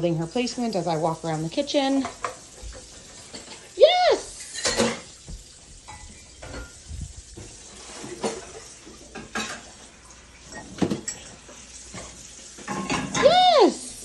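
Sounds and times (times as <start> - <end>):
dishes and cutlery clinking: 2.0 - 3.8, 4.4 - 9.8, 10.4 - 13.5.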